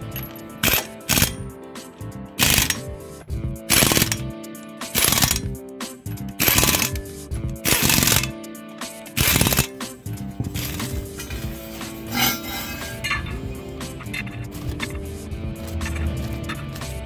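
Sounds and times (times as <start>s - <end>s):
background music with beat: 0.0s - 17.0s.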